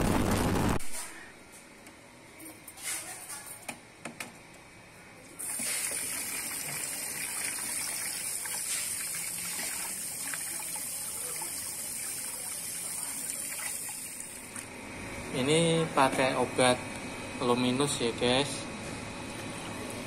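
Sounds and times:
tap water running into bowl: 5.4s - 14.7s.

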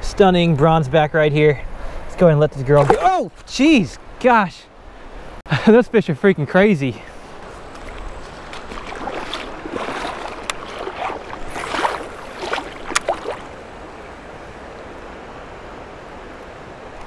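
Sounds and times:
water splashing and sloshing: 2.6s - 3.5s, 7.1s - 14.5s
river current rushing: 7.1s - 17.0s.

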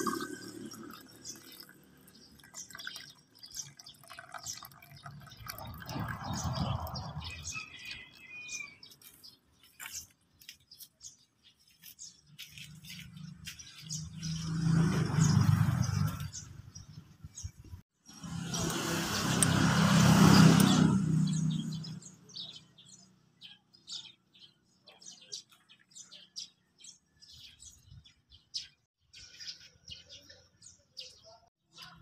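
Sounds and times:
water pouring into glass: 0.0s - 7.4s
bird chirping: 0.0s - 32.0s.

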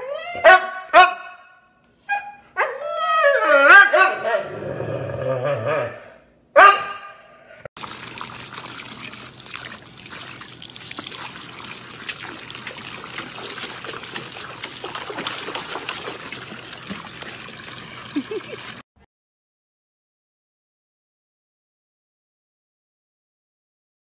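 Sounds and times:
water pouring into a metal bowl: 7.8s - 18.8s
puppy pawing at water: 7.9s - 18.8s.

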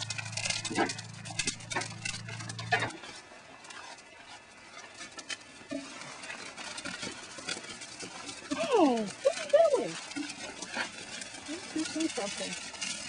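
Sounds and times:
steady low hum: 0.0s - 4.6s
wood fire crackling and popping: 0.0s - 13.0s.

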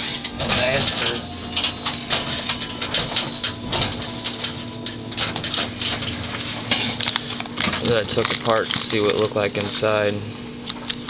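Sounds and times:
small items being rummaged through: 5.3s - 10.0s.

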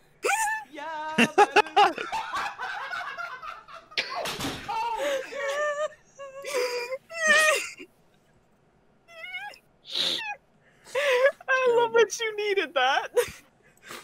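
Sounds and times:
person weeping and laughing: 0.2s - 7.8s.

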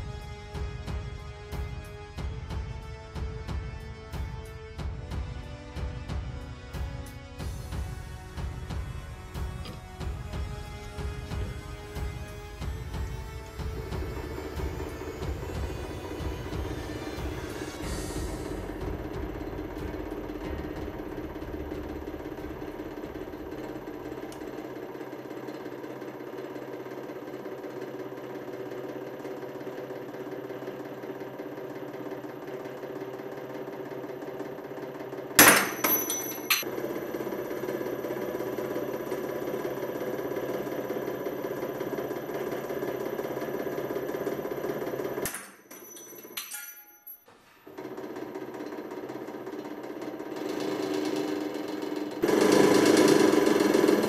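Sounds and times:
hydraulic press humming: 9.4s - 26.1s.

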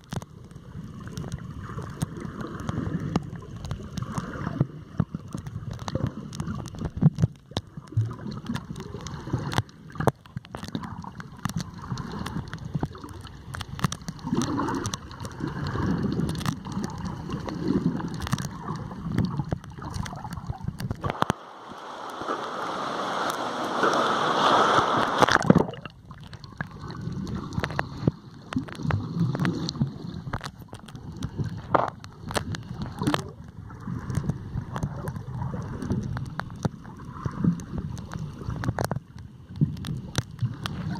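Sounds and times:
small clicks and knocks: 0.0s - 21.4s, 25.2s - 40.9s
underwater gurgling: 0.0s - 40.9s
hissing rush: 21.1s - 25.3s.

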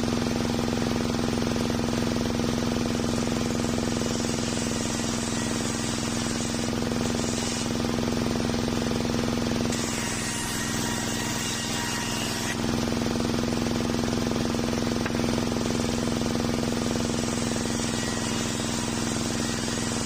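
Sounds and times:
sawmill engine drone: 0.0s - 20.0s
saw blade ripping through log: 3.4s - 8.0s, 9.7s - 12.8s.

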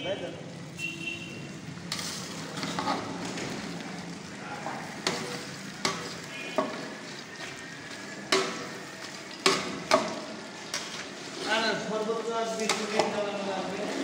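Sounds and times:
meat sizzling: 1.5s - 14.0s
metal ladle scraping a pot: 1.9s - 3.2s.

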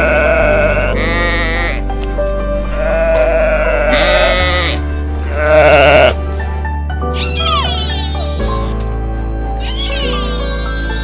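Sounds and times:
sheep bleating: 0.0s - 1.8s, 2.7s - 6.2s
background music: 0.0s - 11.0s.

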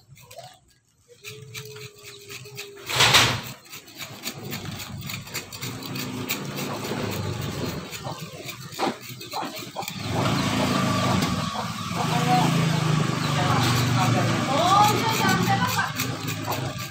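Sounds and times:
coconut husk scraped and torn: 0.0s - 16.9s.

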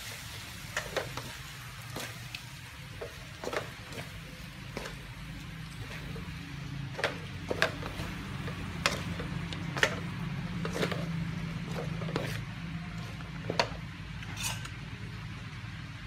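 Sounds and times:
spatula scraping metal wok: 2.9s - 14.8s.

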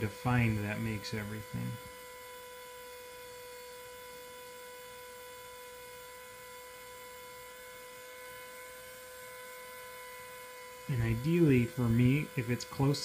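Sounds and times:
small electric motor humming: 0.0s - 13.0s.

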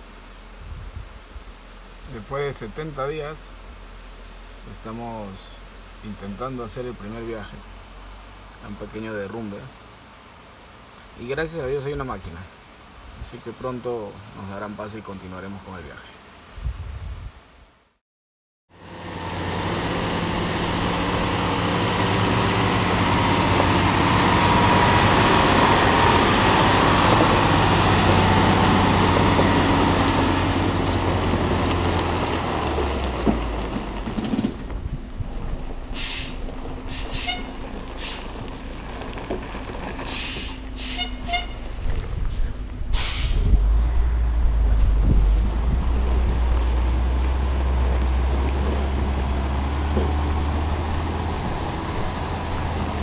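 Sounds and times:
truck diesel engine labouring: 18.8s - 53.0s.

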